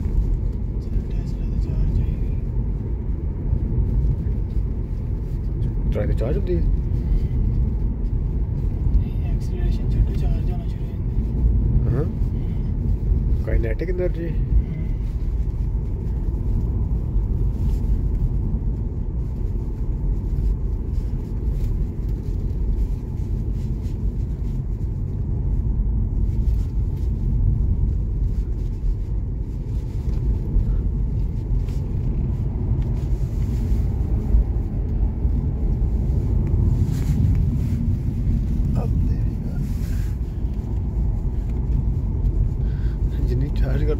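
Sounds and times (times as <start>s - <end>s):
road and tyre rumble inside car: 0.0s - 43.9s.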